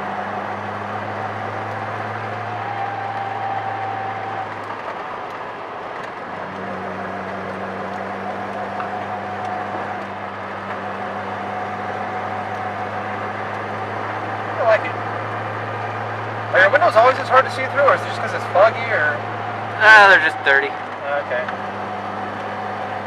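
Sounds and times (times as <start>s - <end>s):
car engine running: 0.0s - 23.0s
thin steady whine: 8.0s - 23.0s.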